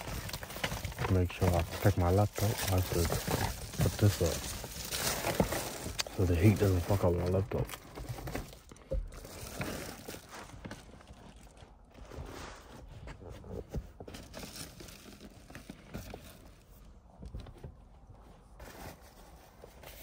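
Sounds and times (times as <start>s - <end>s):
foil sunshade rustling: 0.0s - 16.9s.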